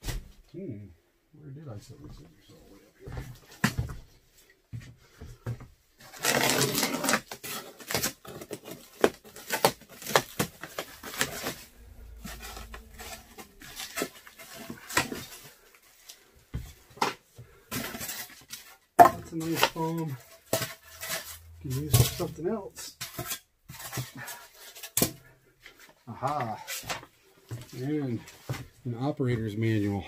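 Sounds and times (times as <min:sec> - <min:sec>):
plastic wrap crinkling and tearing: 0:06.0 - 0:16.4.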